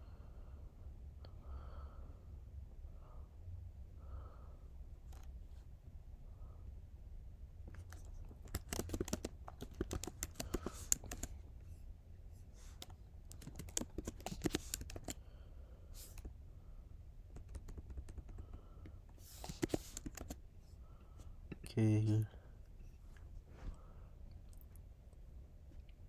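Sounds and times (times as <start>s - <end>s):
faint low hum: 0.0s - 26.0s
typing on computer keyboard: 7.7s - 11.4s, 12.8s - 15.2s, 17.3s - 18.6s, 19.4s - 20.4s.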